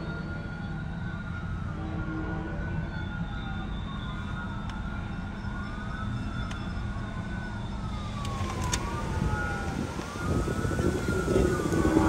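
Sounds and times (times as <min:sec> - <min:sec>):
emergency siren wailing: 0:00.0 - 0:12.0
steady low rumble: 0:03.8 - 0:12.0.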